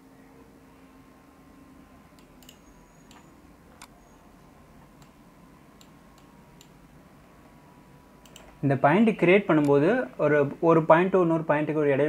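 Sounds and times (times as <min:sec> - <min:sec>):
faint steady hum: 0:00.0 - 0:12.0
computer mouse clicks: 0:02.2 - 0:04.0, 0:05.0 - 0:05.2, 0:05.8 - 0:06.8, 0:08.2 - 0:08.6.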